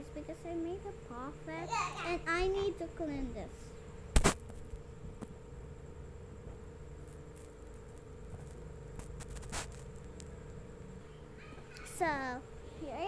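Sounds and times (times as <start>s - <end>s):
steady low hum: 0.0s - 13.0s
rustling and handling noise: 6.8s - 10.9s.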